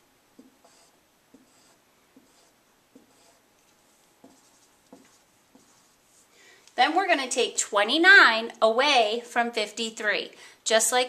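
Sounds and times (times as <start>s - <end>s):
marker strokes on whiteboard: 0.4s - 6.3s.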